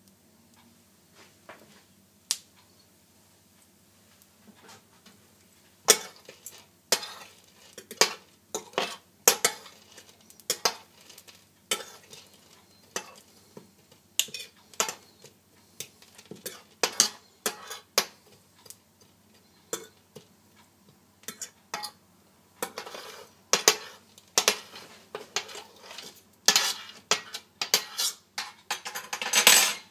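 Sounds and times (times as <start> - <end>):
spoon clinking and scraping dish: 5.9 - 13.4, 14.2 - 20.3, 21.2 - 22.0, 22.6 - 29.9.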